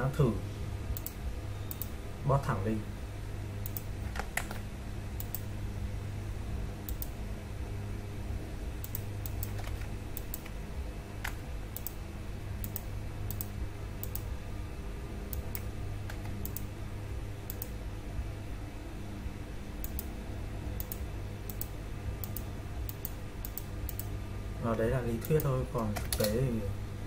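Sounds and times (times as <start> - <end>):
steady low hum: 0.0 - 27.0
computer mouse clicks: 1.0 - 1.9, 3.6 - 4.6, 5.2 - 5.5, 6.9 - 7.2, 8.8 - 10.6, 11.2 - 12.0, 12.6 - 14.3, 15.3 - 16.7, 17.5 - 17.7, 19.8 - 20.1, 20.8 - 24.1, 25.2 - 26.4.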